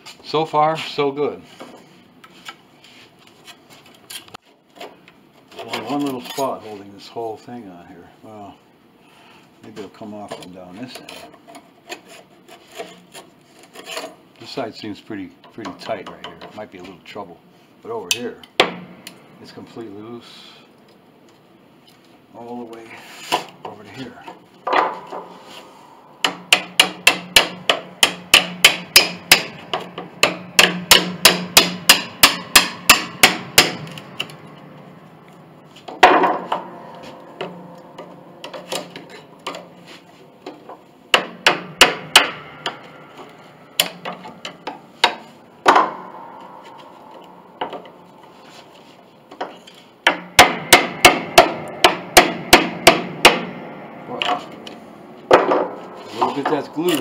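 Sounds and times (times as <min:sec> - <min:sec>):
hammer tapping a chisel: 0:26.2 - 0:34.4.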